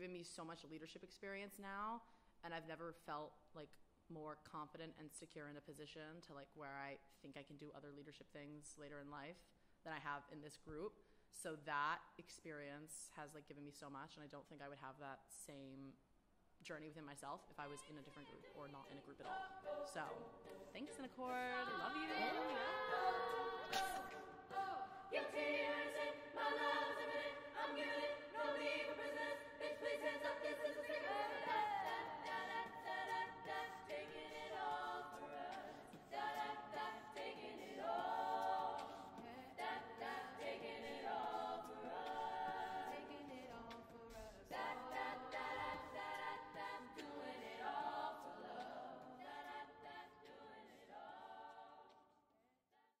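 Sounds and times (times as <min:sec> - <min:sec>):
a cappella group singing: 0:17.6 - 0:52.2.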